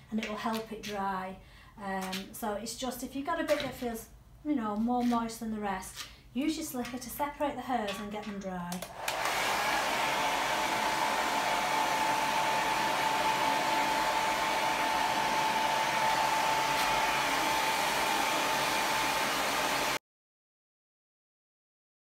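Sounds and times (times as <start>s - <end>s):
hairdryer running: 8.8s - 20.0s.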